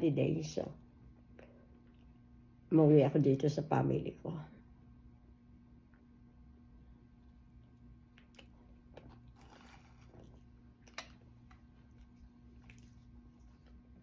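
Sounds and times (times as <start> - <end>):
low steady hum: 0.0 - 14.0
person tearing and chewing bread: 7.1 - 14.0.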